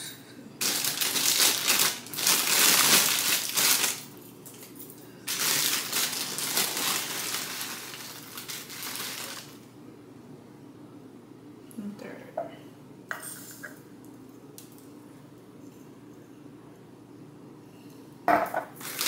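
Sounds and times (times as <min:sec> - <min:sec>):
plastic bag crinkling: 0:00.6 - 0:09.7, 0:18.7 - 0:19.0.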